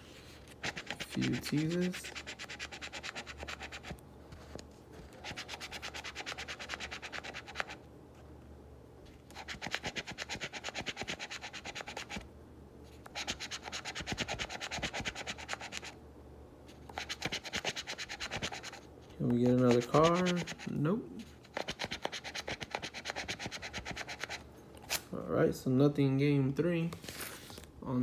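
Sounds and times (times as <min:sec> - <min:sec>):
coin scraping a scratch card: 0:05.2 - 0:07.8.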